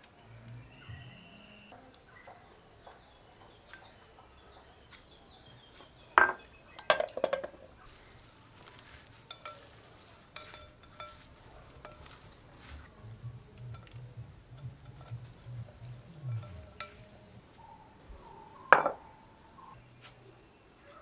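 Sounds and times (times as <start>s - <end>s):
utensils clinking on glass bowl: 9.2s - 12.8s, 13.6s - 14.0s, 14.6s - 17.1s.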